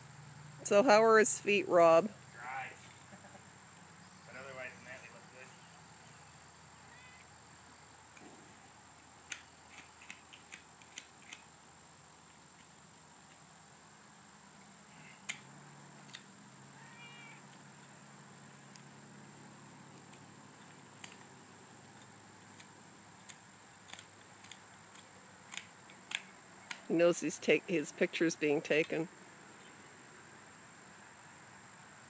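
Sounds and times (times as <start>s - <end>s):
cat meowing: 6.9s - 7.2s, 16.8s - 17.4s.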